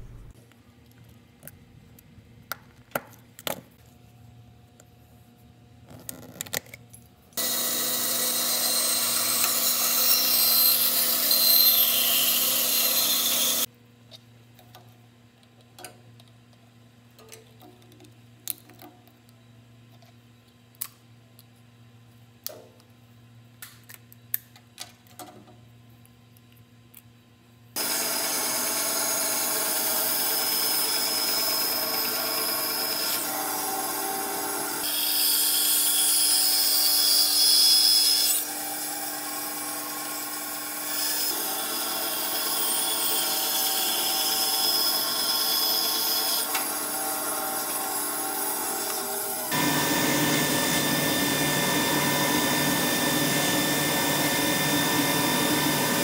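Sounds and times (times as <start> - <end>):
bandsaw cutting wood: 7.4 - 13.7, 27.8 - 56.0.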